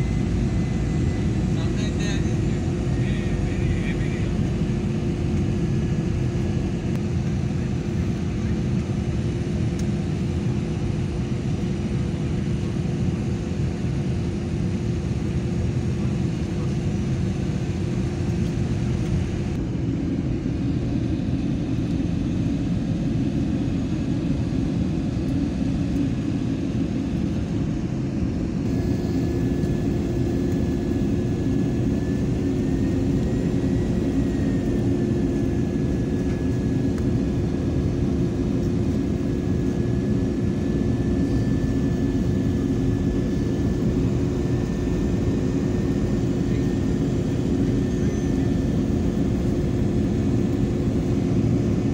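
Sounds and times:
jet engine drone: 0.0s - 51.9s
faint high whine: 28.7s - 51.9s.

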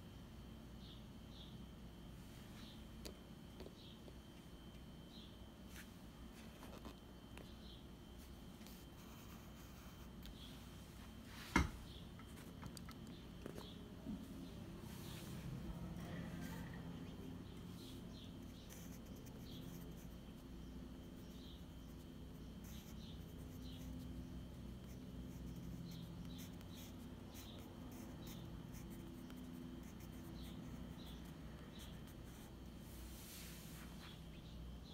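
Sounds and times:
steady low hum: 0.0s - 34.9s
pencil scratching on paper: 8.6s - 10.1s, 15.2s - 32.6s.

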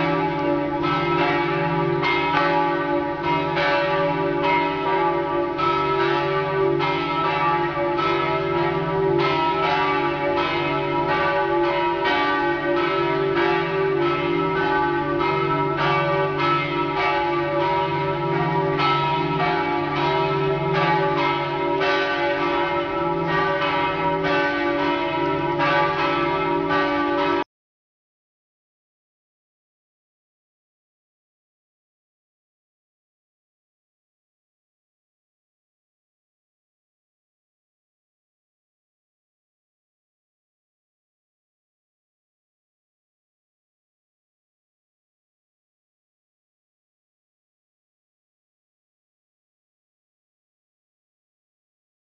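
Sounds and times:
church bells pealing: 0.0s - 27.4s.

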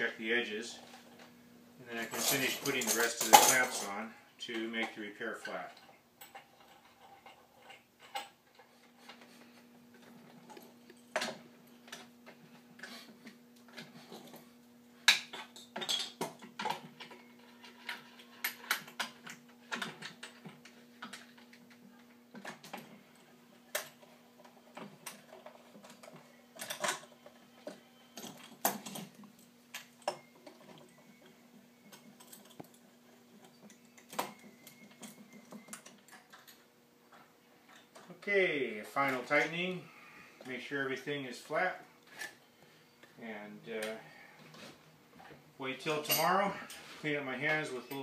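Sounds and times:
faint steady hum: 0.0s - 48.0s
metal clamps clinking and clicking: 2.0s - 4.0s.

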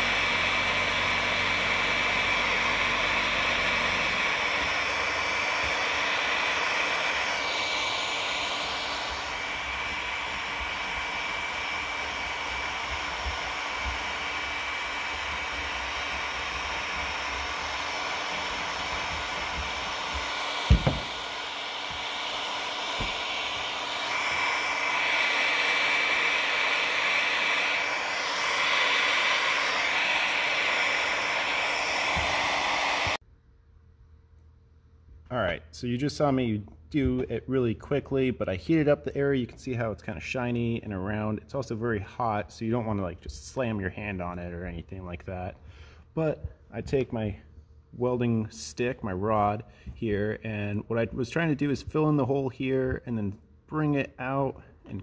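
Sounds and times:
heat gun blowing with fan whine: 0.0s - 33.2s
sharp knock: 20.7s - 21.1s.

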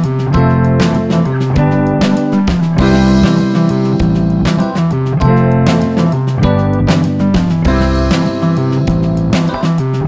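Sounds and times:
guitar instrumental music with beat: 0.0s - 10.0s.

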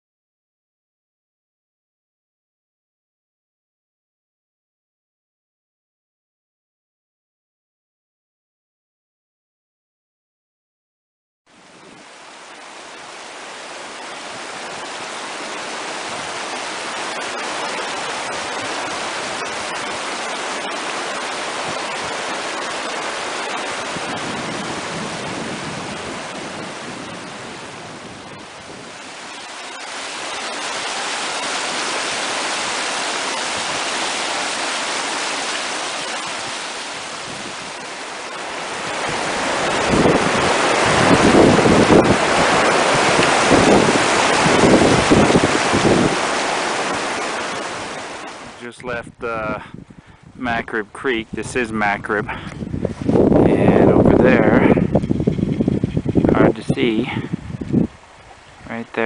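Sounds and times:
creek rushing over rocks: 11.6s - 49.8s, 50.4s - 59.0s
wind buffeting microphone: 14.0s - 29.5s, 30.1s - 59.0s.

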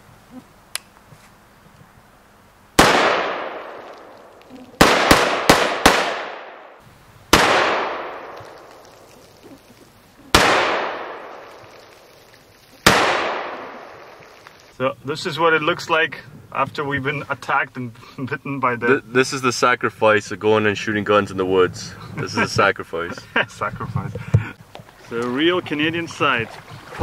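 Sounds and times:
rifle shots echoing: 2.8s - 9.1s, 10.3s - 12.0s, 12.8s - 14.2s.

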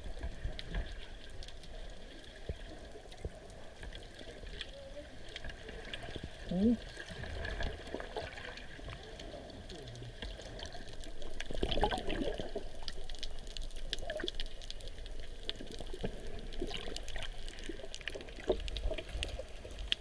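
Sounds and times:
small underwater clicks: 0.0s - 20.0s
underwater swishing and bubbling: 0.0s - 20.0s.

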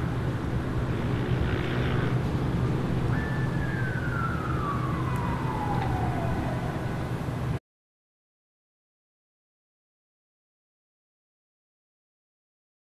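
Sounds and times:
low city rumble: 0.0s - 7.6s
distant siren winding down: 2.8s - 7.6s.

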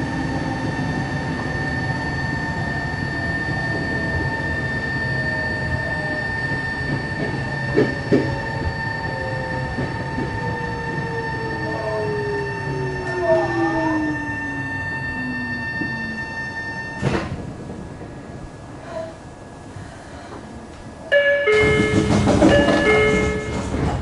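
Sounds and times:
train high whine: 0.0s - 24.0s
train rumble: 0.0s - 24.0s
lower whine falling in pitch: 8.4s - 17.2s.

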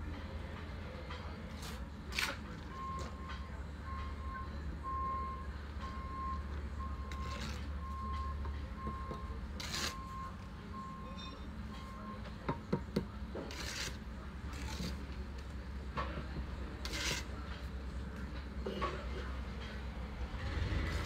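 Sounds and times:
low engine rumble: 0.0s - 21.0s
reversing alarm beeping: 2.6s - 12.4s
trowel scraping on brick: 7.1s - 7.8s, 9.5s - 10.1s, 13.3s - 15.2s, 16.7s - 17.7s.

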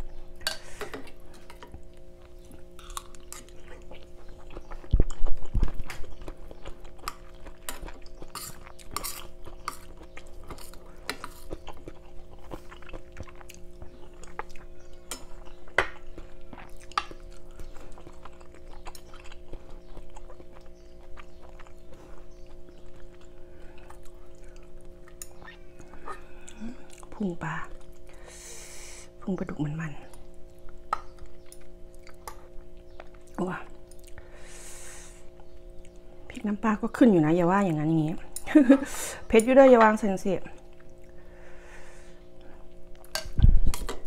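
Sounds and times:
steady low hum: 0.0s - 44.0s
person chewing: 1.0s - 27.2s, 30.1s - 34.4s.

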